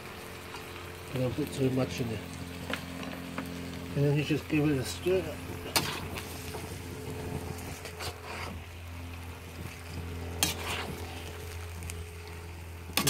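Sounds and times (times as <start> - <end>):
steady low hum: 0.0 - 13.0
stir-fry sizzling in a wok: 0.0 - 13.0
metal spoon scraping a pan: 5.6 - 6.4, 7.6 - 8.6, 9.6 - 11.5.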